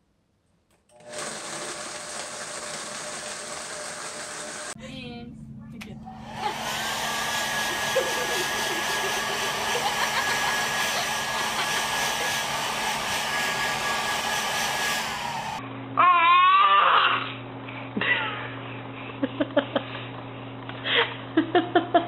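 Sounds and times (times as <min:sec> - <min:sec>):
electric blower running: 0:00.9 - 0:04.8, 0:06.0 - 0:15.7.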